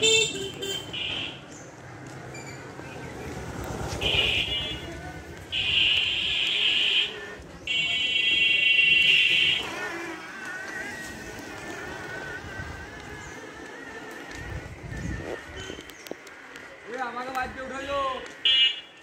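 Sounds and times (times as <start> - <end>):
motorcycle passing: 0.0 - 19.0
high-pitched buzzy vehicle horn: 4.0 - 4.9, 5.6 - 10.1.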